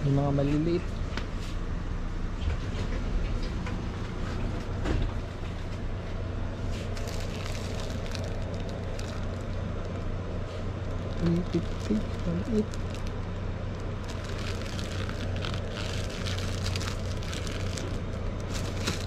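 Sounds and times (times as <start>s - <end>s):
shop background hum: 0.0s - 19.0s
plastic wrapping crinkling: 6.7s - 19.0s.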